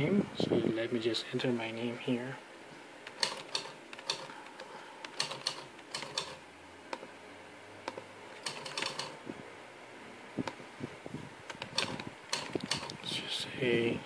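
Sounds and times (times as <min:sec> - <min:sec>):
laptop keyboard typing: 0:03.0 - 0:04.4, 0:05.0 - 0:07.0, 0:07.9 - 0:09.2, 0:11.5 - 0:13.0.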